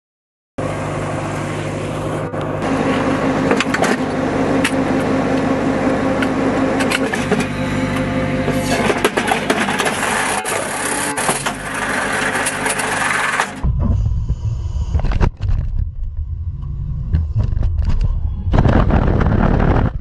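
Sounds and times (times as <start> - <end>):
diesel engine running: 0.6 - 20.0
metallic clanks and scraping: 6.8 - 13.7.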